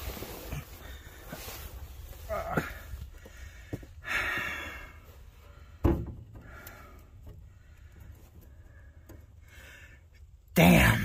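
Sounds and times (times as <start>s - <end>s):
faint rustling: 0.0s - 4.0s.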